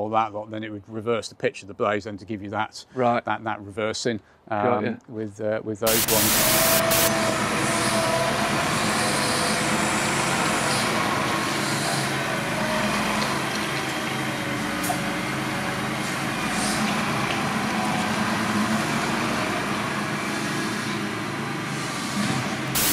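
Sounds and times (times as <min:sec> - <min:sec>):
tractor diesel engine running: 0:05.9 - 0:22.9.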